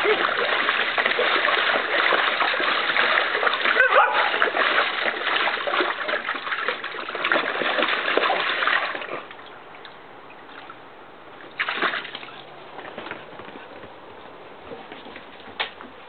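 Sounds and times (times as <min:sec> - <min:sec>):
dog splashing in water: 0:00.0 - 0:09.9, 0:11.4 - 0:13.4.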